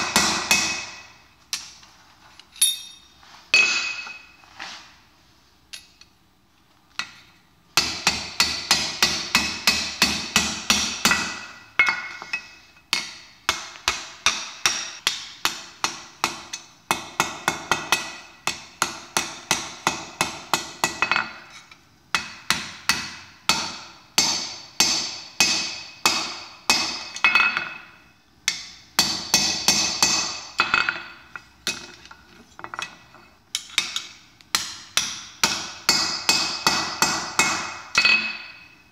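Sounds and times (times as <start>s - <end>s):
single clink: 2.6s - 4.3s.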